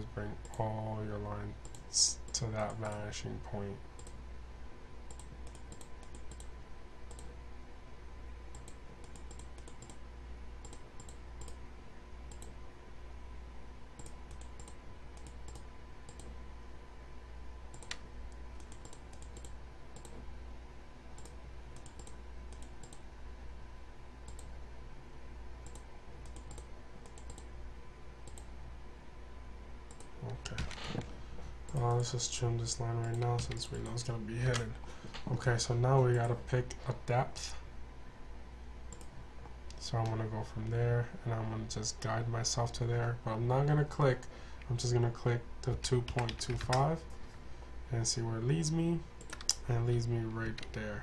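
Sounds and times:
low electrical hum: 0.0 - 51.0
computer mouse clicks: 0.4 - 0.6, 1.6 - 3.1, 4.0 - 4.2, 5.1 - 6.5, 7.1 - 7.3, 8.5 - 10.0, 10.6 - 11.6, 12.3 - 12.6, 14.0 - 16.4, 17.7 - 20.2, 21.2 - 23.0, 24.3 - 24.6, 25.6 - 27.5, 28.2 - 28.5, 29.9 - 30.7, 31.7 - 32.1, 33.0 - 34.7, 38.9 - 40.2, 49.2 - 49.6.

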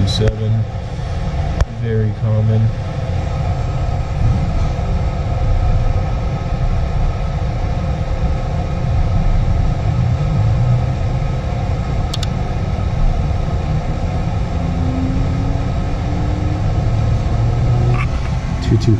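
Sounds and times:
furnace blower rumble: 0.0 - 18.9.

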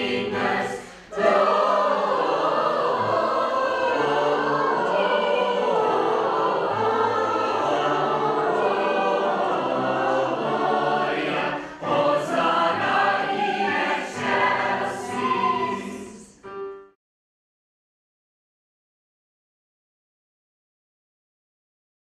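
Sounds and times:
choir singing a carol: 0.0 - 16.7.

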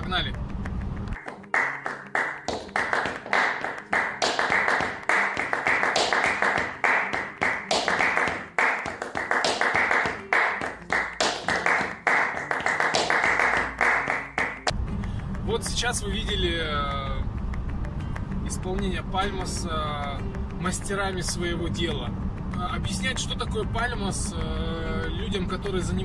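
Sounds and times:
people clapping hands rhythmically: 1.1 - 21.8.

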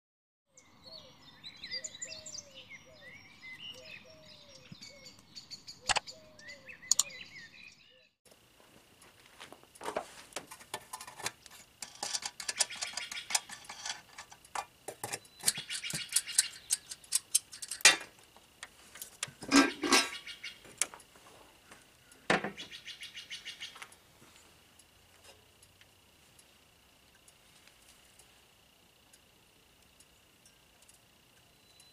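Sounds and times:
air cleaner lid clicks and rattles: 10.5 - 18.1
sharp metallic clanks: 11.6 - 18.1, 19.2 - 20.3.

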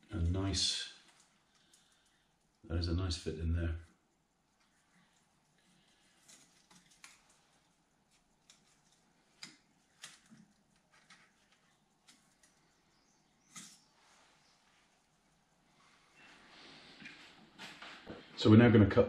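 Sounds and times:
light clicks and taps of metal parts: 1.0 - 2.6, 3.8 - 13.9.

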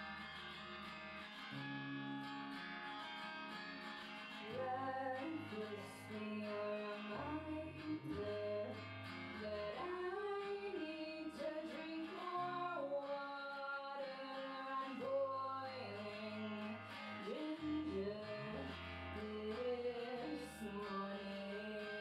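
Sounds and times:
guitar: 0.0 - 22.0
woman singing: 4.4 - 22.0.

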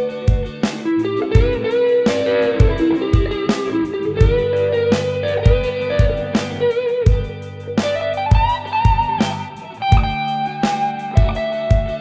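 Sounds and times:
electric guitar lead with bends: 0.0 - 12.0
low thumps: 1.3 - 7.4.

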